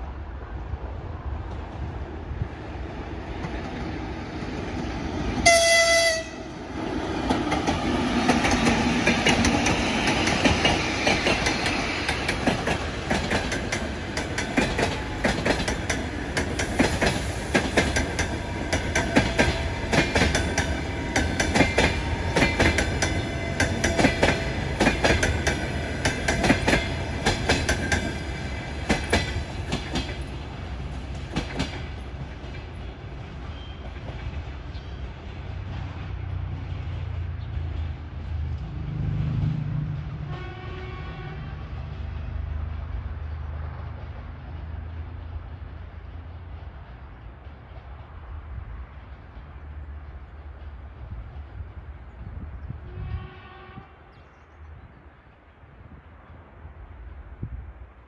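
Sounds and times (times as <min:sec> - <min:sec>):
train horn blast: 0:05.4 - 0:06.5, 0:40.2 - 0:41.9, 0:52.8 - 0:54.2.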